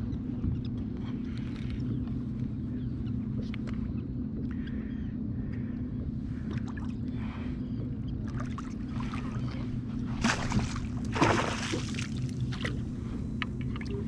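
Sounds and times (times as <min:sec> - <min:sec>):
steady low hum: 0:00.0 - 0:14.0
water splashing: 0:10.2 - 0:12.8.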